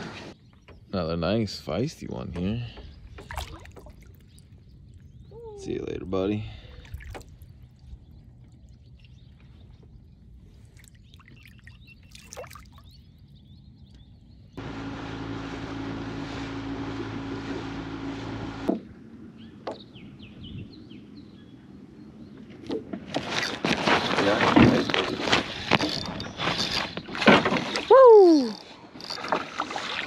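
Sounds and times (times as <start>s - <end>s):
faint water sounds: 1.0s - 14.0s.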